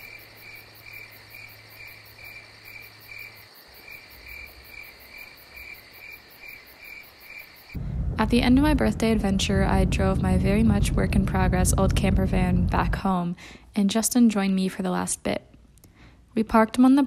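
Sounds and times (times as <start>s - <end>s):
high insect trill: 0.0s - 7.8s
crickets chirping: 0.0s - 8.2s.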